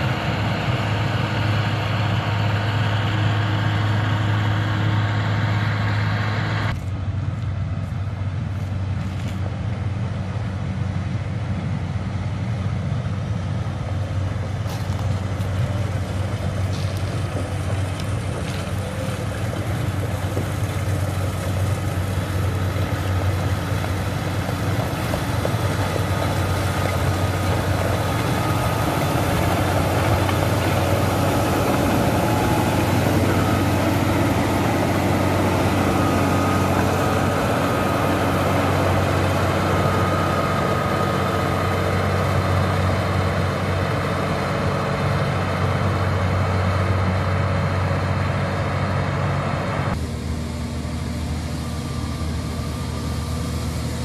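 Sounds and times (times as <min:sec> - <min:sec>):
grader diesel engine running: 0:00.0 - 0:54.0
blade pushing gravel: 0:14.6 - 0:43.0.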